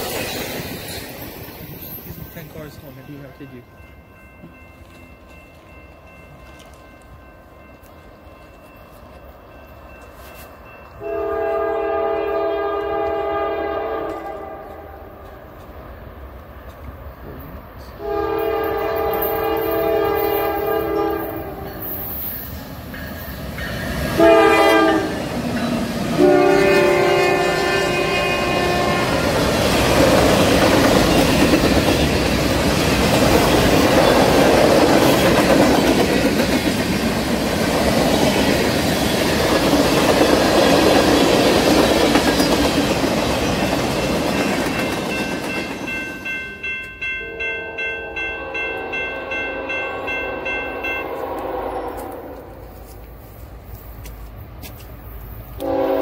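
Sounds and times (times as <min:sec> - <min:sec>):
train rumble: 0:00.0 - 0:56.0
locomotive horn chord: 0:11.0 - 0:15.0, 0:18.0 - 0:21.7, 0:24.2 - 0:25.3, 0:26.1 - 0:29.3, 0:47.2 - 0:52.6, 0:55.6 - 0:56.0.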